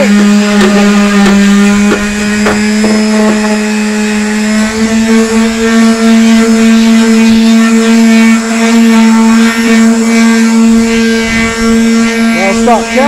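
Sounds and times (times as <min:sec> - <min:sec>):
electric sander motor hum: 0:00.0 - 0:13.0.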